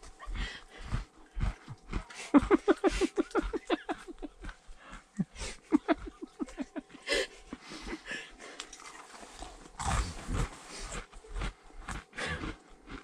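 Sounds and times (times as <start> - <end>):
person laughing breathily: 0.0 - 8.6, 12.1 - 12.6.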